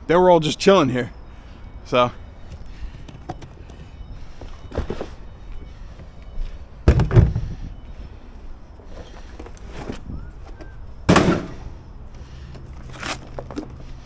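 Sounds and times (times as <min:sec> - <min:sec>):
outdoor background noise: 0:00.0 - 0:14.0
thunk: 0:06.9 - 0:07.5, 0:11.1 - 0:11.6.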